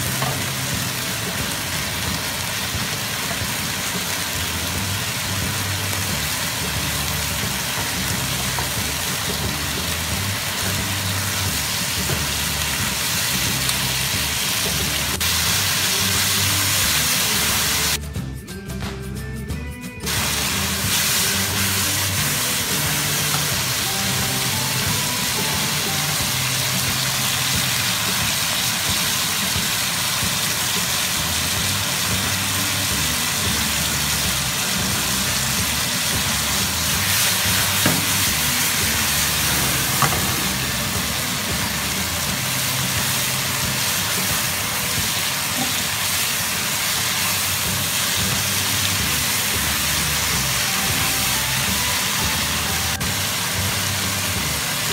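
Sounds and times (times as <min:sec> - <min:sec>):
food sizzling in a wok: 0:00.0 - 0:18.2, 0:20.0 - 0:54.9
low background music: 0:00.0 - 0:54.9
sharp knocks: 0:39.6 - 0:40.6.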